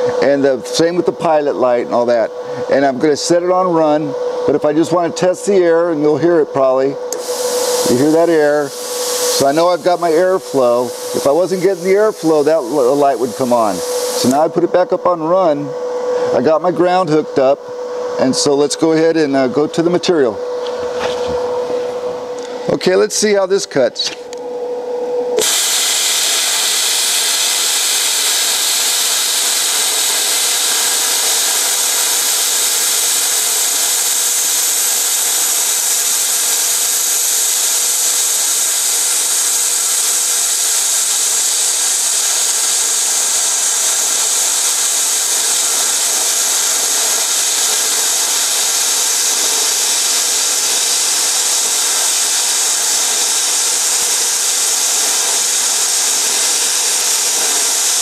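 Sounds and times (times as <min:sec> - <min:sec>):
plasma cutter hissing: 0:07.1 - 0:14.6, 0:25.4 - 0:58.0.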